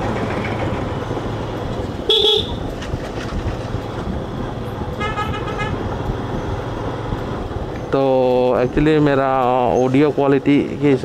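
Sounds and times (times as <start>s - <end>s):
wind and road noise: 0.0s - 11.0s
vehicle horn toot: 2.1s - 2.7s, 5.0s - 5.8s.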